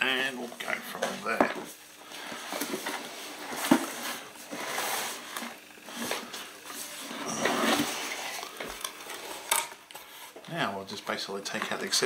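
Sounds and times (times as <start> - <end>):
cardboard rubbing and sliding: 2.3 - 9.4.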